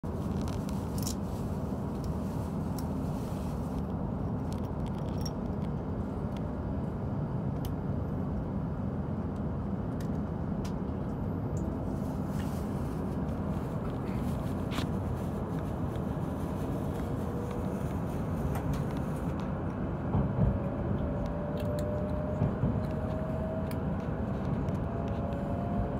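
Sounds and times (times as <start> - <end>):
train cabin rumble: 9.4 - 25.9.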